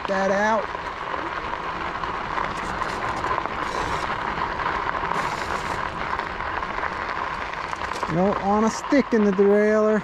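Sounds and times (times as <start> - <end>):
tyres rolling on a trail: 0.0 - 10.0
electric motor whine: 1.2 - 8.1.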